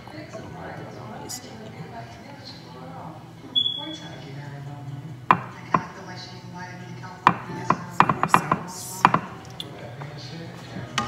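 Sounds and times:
kitchen utensils knocking: 0:07.3 - 0:09.3.

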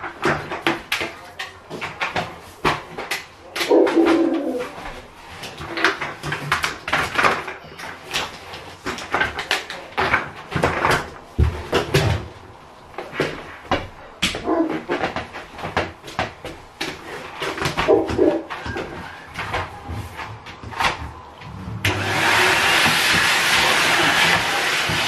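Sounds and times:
vacuum cleaner being handled: 0:00.0 - 0:25.0.

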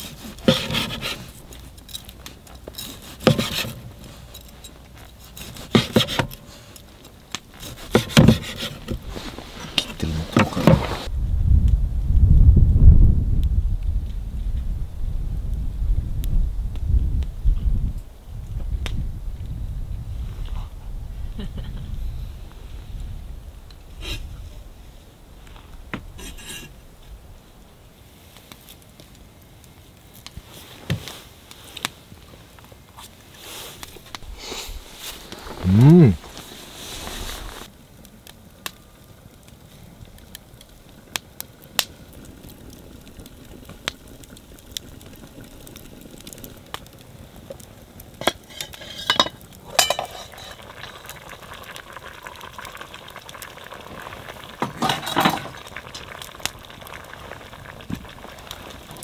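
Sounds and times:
scraping and rubbing strokes: 0:00.0 - 0:01.4, 0:02.8 - 0:04.3, 0:07.5 - 0:11.1, 0:33.0 - 0:37.7
cookware and utensils clinking: 0:48.2 - 0:51.1, 0:54.6 - 0:55.6.

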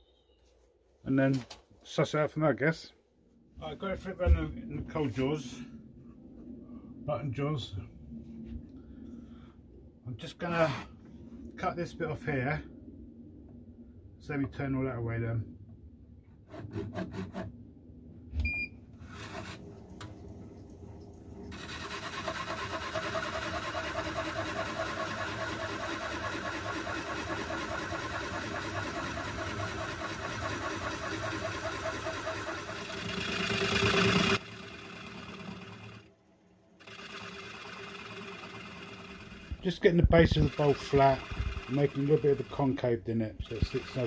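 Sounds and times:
tool shaving wood: 0:16.5 - 0:17.5, 0:19.0 - 0:19.6, 0:21.5 - 0:36.0, 0:36.8 - 0:42.8, 0:43.4 - 0:44.0
short beep: 0:18.4 - 0:18.8
lathe motor whining: 0:19.1 - 0:20.1, 0:21.5 - 0:42.8, 0:43.4 - 0:44.0.

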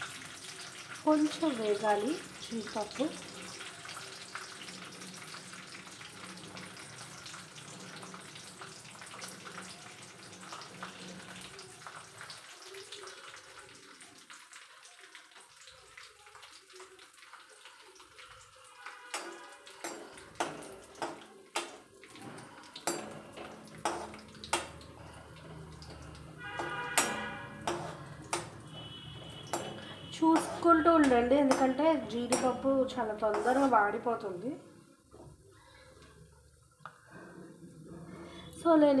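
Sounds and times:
nuts sizzling in a pan: 0:00.0 - 0:36.0
metal spoon scraping a pan: 0:18.8 - 0:34.0.

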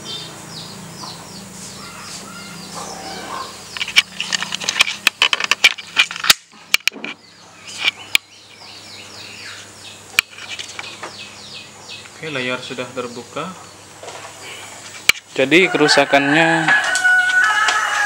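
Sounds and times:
bird chirping: 0:00.0 - 0:05.0, 0:07.0 - 0:15.6
sharp clicks and knocks: 0:03.7 - 0:07.2.

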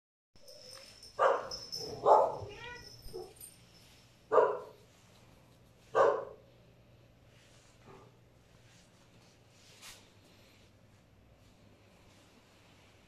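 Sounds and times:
dog barking: 0:01.2 - 0:02.5, 0:04.3 - 0:04.8, 0:05.9 - 0:06.5.

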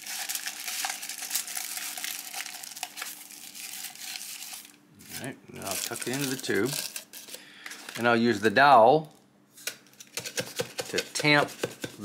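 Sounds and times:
aluminium foil crinkling: 0:00.0 - 0:08.2.

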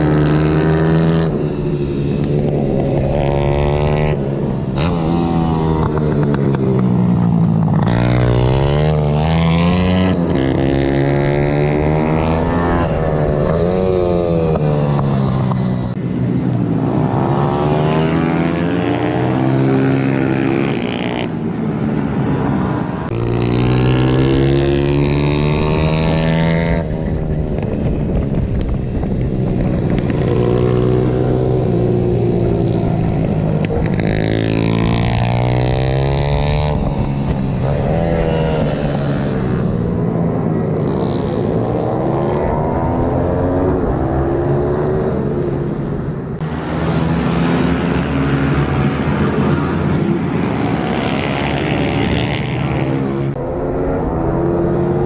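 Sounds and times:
motorbike engines revving: 0:00.0 - 0:55.0
wind rush on microphone: 0:21.1 - 0:46.8.

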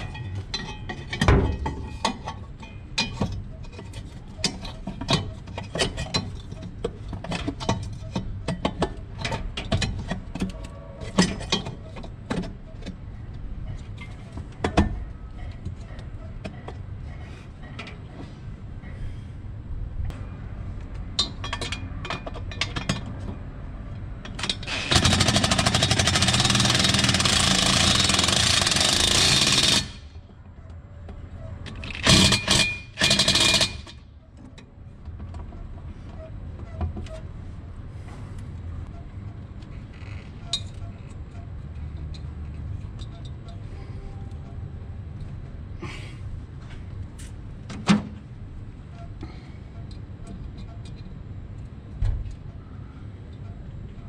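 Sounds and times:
steady low rumble: 0:16.8 - 0:21.3.

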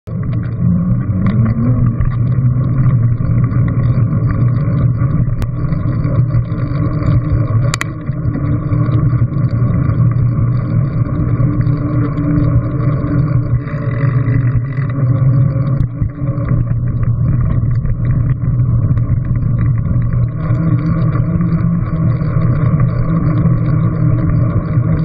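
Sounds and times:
bicycle wind and tyre rumble: 0:00.1 - 0:25.0
sharp clicks: 0:07.0 - 0:08.0.

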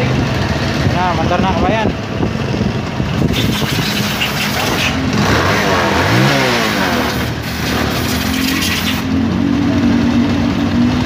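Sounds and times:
motorcycle engine running: 0:00.0 - 0:11.0
engine revving: 0:02.5 - 0:11.0.

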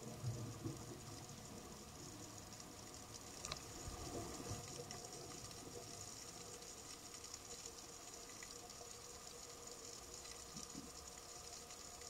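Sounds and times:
underwater hum and hiss: 0:00.0 - 0:12.0.

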